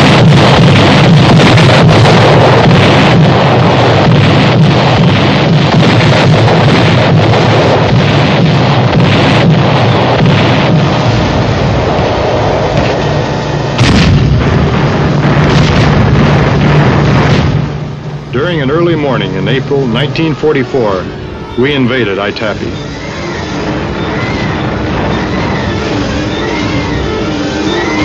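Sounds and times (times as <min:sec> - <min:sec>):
steady low drone: 0:00.0 - 0:28.0.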